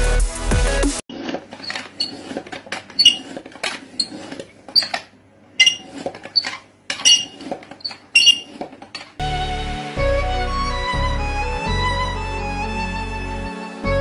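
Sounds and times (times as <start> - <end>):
short high squeak: 1.6 - 2.4, 3.0 - 3.4, 4.0 - 8.6.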